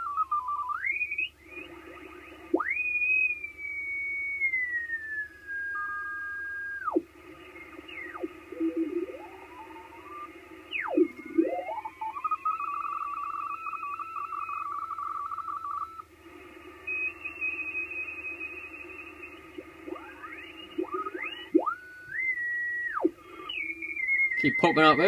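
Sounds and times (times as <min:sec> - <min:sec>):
faint higher radio tone: 0:00.0 - 0:25.0
radio whistles sliding in pitch: 0:00.0 - 0:25.0
tone flicking between two pitches: 0:06.8 - 0:16.0, 0:16.9 - 0:25.0.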